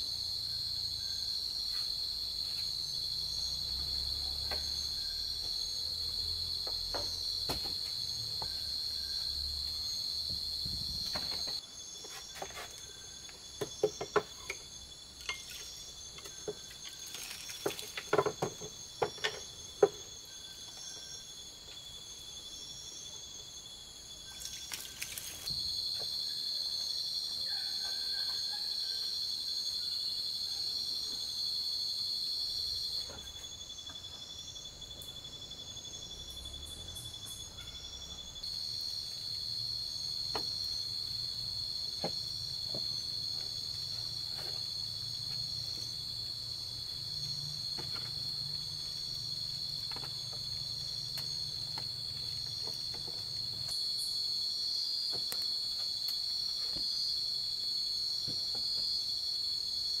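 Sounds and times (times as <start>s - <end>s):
night insects chorus: 0.0s - 60.0s
knocks on bamboo floor: 6.6s - 8.6s, 18.0s - 20.0s.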